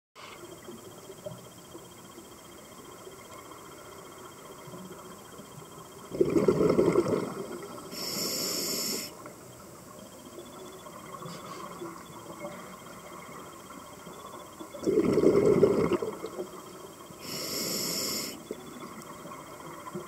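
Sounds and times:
exhaled bubbles rushing: 6.1s - 7.8s, 14.8s - 16.4s
regulator inhalation hiss: 7.9s - 9.2s, 17.2s - 18.6s.

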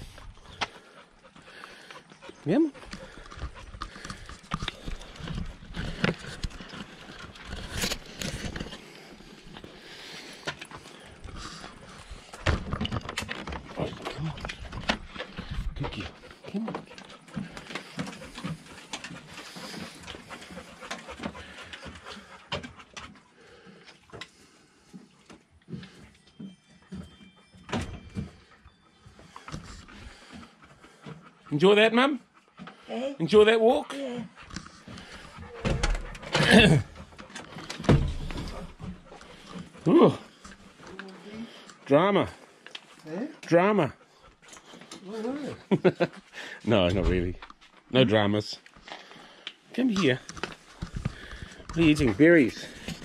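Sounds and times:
footsteps on wooden deck: 0.0s - 23.3s, 34.2s - 40.9s
dog paws on concrete: 0.0s - 25.9s, 29.2s - 53.0s.

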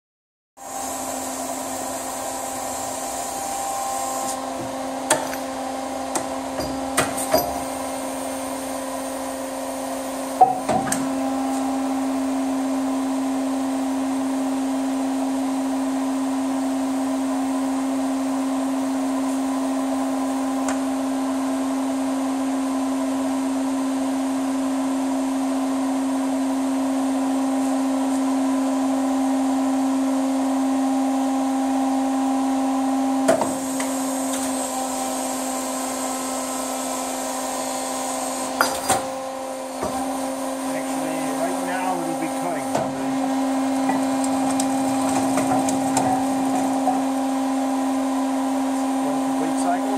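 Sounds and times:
machine hum: 1.3s - 15.3s, 33.6s - 49.9s.

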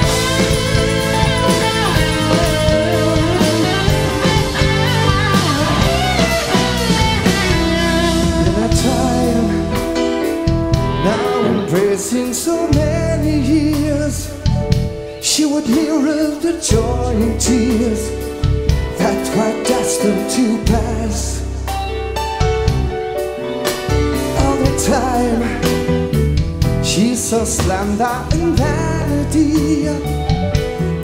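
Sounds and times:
drums with cymbals: 0.0s - 21.0s
man singing: 0.0s - 21.7s, 24.2s - 31.0s
bass: 0.0s - 31.0s
electric guitar: 0.0s - 31.0s
keyboards: 0.0s - 31.0s.

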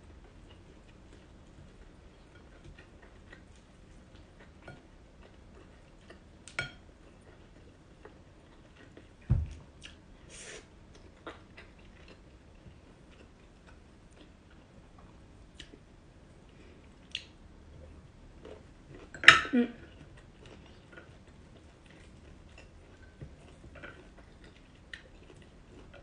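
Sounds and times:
person chewing: 0.4s - 6.2s, 9.8s - 14.7s, 19.9s - 26.0s
dull thump: 9.3s - 9.6s.

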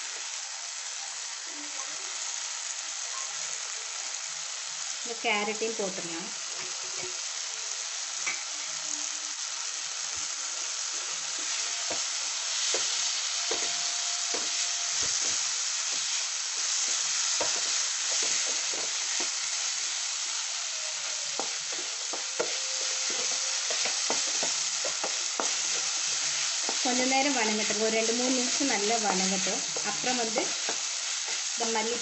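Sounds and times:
vegetables sizzling in oil: 0.0s - 32.0s
wooden spatula scraping pan: 11.3s - 19.4s.

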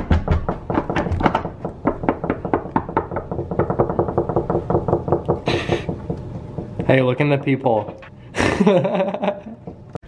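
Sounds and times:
knocking on a door by hand: 0.0s - 7.0s.

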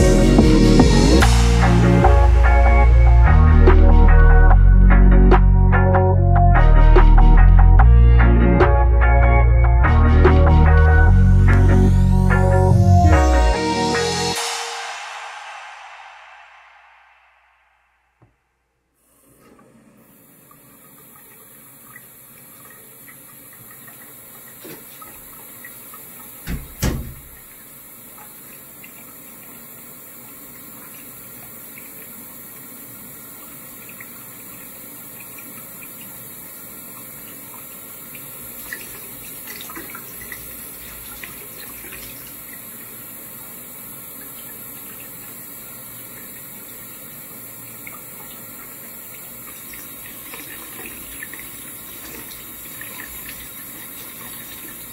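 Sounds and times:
faucet running into sink: 20.2s - 54.9s
dull thump: 26.5s - 27.4s.

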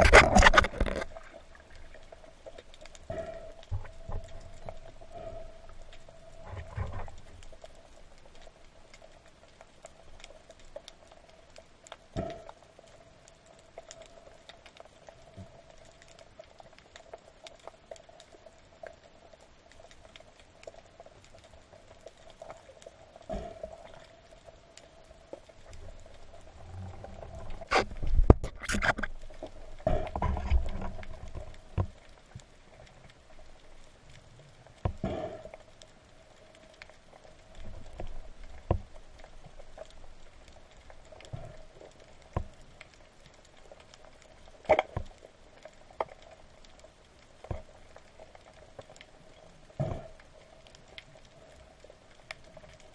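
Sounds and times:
faint underwater hum: 0.0s - 52.9s
small underwater clicks: 0.0s - 52.9s.

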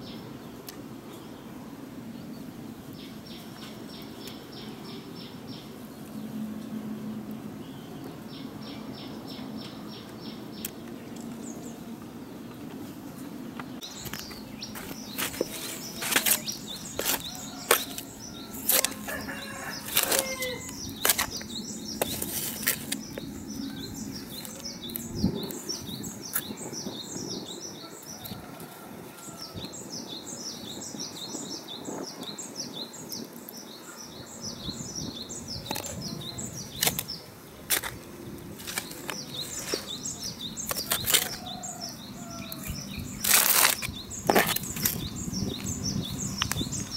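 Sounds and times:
small birds chirping: 0.0s - 46.9s
trowel scraping soil in metal basin: 14.0s - 23.4s, 37.7s - 38.0s, 38.6s - 41.6s.

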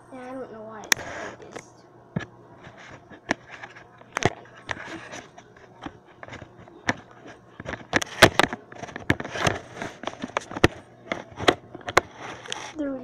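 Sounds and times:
phone being handled: 2.2s - 12.6s.

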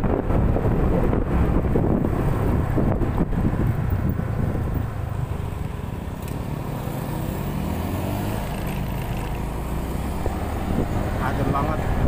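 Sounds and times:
wind buffeting microphone: 0.0s - 6.2s, 10.0s - 12.0s.

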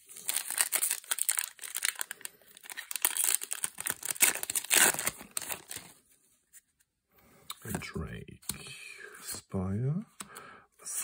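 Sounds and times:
foil wrapper crinkling and tearing: 0.0s - 5.9s.

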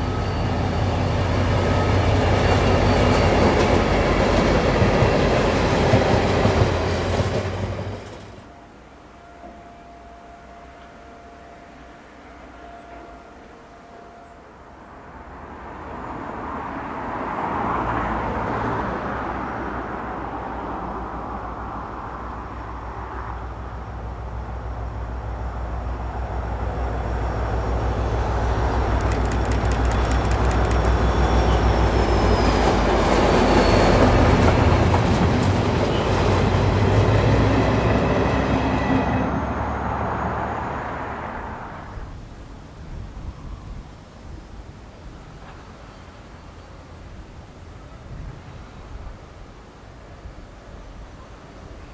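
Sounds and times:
diesel locomotive engine rumble: 0.0s - 12.6s, 17.4s - 43.1s
train wheels clattering: 28.6s - 36.4s
wheel squeal: 28.8s - 34.5s.

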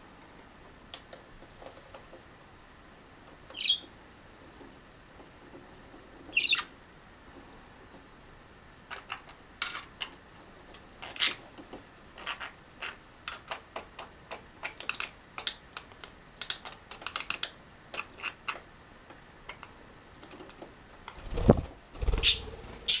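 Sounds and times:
budgie beak clicks and taps: 12.8s - 20.7s.

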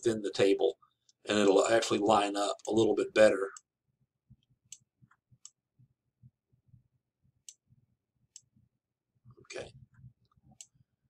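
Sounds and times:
computer mouse clicks: 7.4s - 7.6s, 8.3s - 8.5s, 9.9s - 10.8s.

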